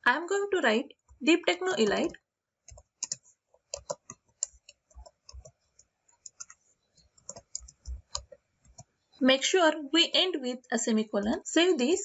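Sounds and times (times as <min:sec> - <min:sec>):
computer keyboard typing: 0:02.7 - 0:08.9.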